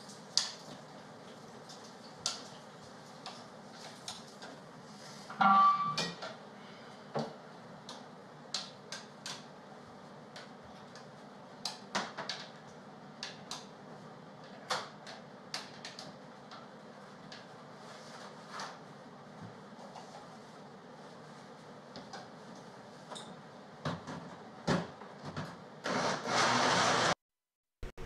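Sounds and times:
ringing metal clang: 5.4 - 6.2.

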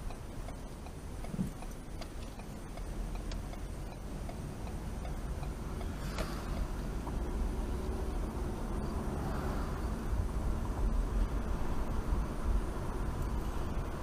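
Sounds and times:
turn-signal indicator ticking: 0.0 - 7.2
engine and road rumble: 0.0 - 14.0.

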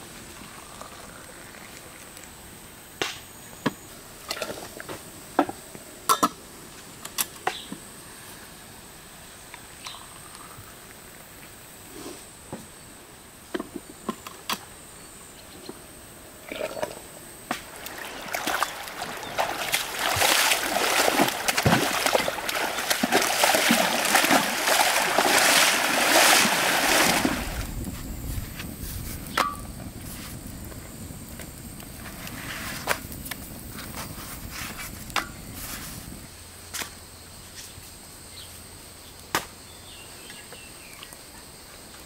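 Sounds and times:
water splashing and sloshing: 16.4 - 28.1.

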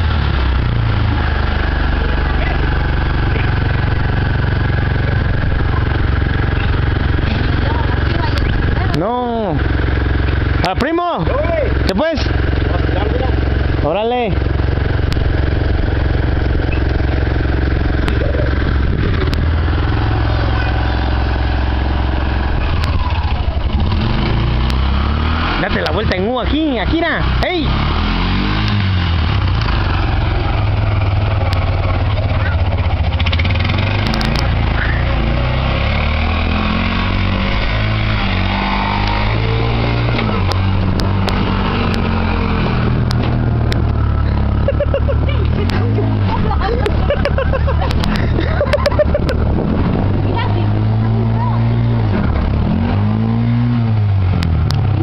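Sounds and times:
small engine running: 0.0 - 55.0
sharp clicks or rattles: 33.8 - 34.9.

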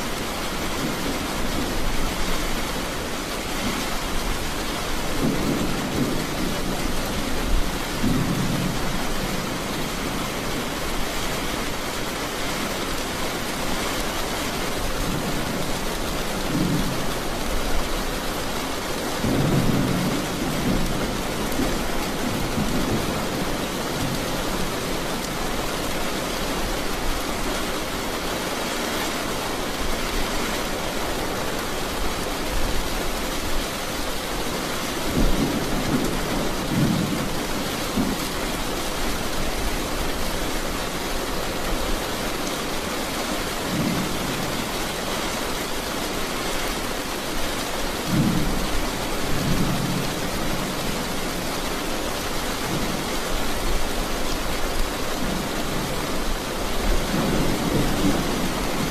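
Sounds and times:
heavy rain: 0.0 - 58.9
low rumbles of thunder: 5.0 - 10.8, 19.2 - 24.9, 35.1 - 38.4, 48.0 - 50.8.

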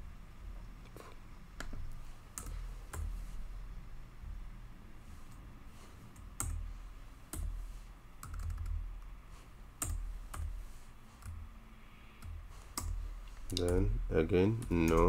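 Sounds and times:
faint low hum: 0.0 - 15.0
computer keyboard keystrokes: 2.3 - 3.2, 6.2 - 6.6, 8.2 - 8.8, 9.8 - 10.6, 12.2 - 13.9, 14.6 - 15.0.

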